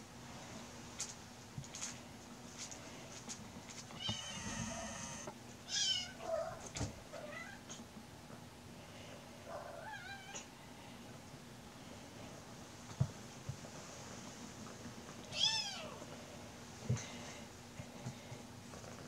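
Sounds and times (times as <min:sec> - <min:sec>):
kittens shrieking and mewing: 0:04.0 - 0:06.2.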